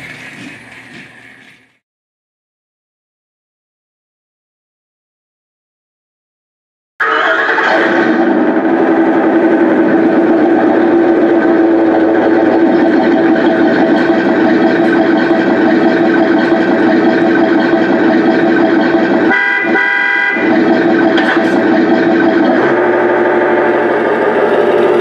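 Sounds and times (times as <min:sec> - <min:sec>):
toy engine sound effect: 0:07.0 - 0:25.0
toy horn tone: 0:19.3 - 0:20.5.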